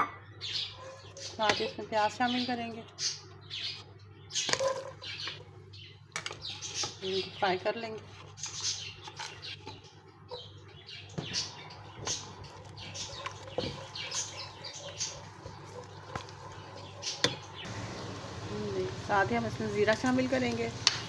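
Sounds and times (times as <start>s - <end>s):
onions sizzling in hot oil: 17.2s - 21.0s.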